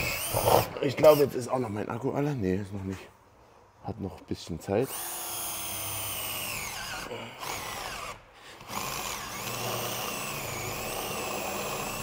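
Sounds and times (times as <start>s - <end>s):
cordless drill boring metal: 0.0s - 1.2s, 4.9s - 12.0s.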